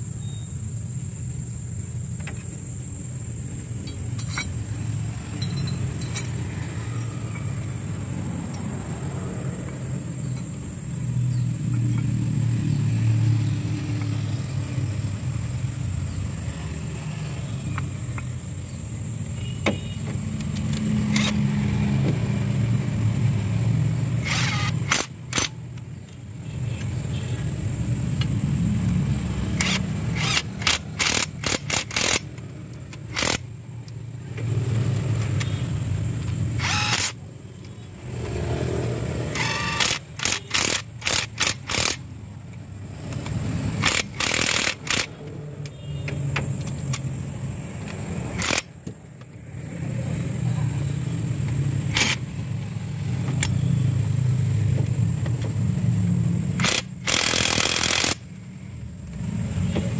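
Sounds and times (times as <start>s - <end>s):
impact wrench bursts: 3.8s - 8.2s, 19.4s - 21.8s, 23.8s - 26.0s, 29.0s - 46.0s, 46.7s - 48.9s, 51.7s - 53.7s, 56.5s - 58.5s
low mechanical drone: 20.2s - 45.7s.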